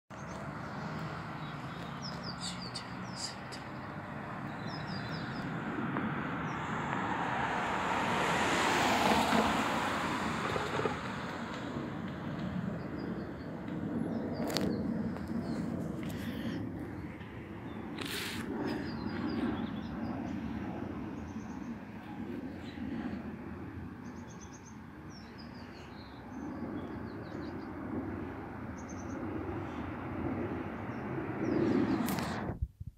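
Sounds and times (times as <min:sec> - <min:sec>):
small birds chirping: 0:00.1 - 0:05.6, 0:12.7 - 0:23.3, 0:23.9 - 0:27.8, 0:28.7 - 0:29.9
jet airliner passing overhead: 0:00.1 - 0:32.6
bird chirps: 0:01.4 - 0:05.5.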